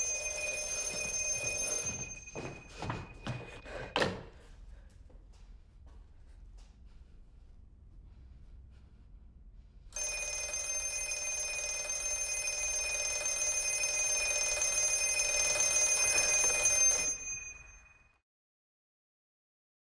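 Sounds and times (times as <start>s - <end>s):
telephone bell ringing: 0.0s - 3.6s, 10.0s - 18.2s.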